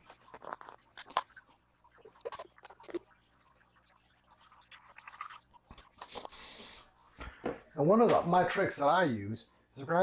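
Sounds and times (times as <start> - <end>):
cream trickling into steel bowl: 0.0 - 6.1.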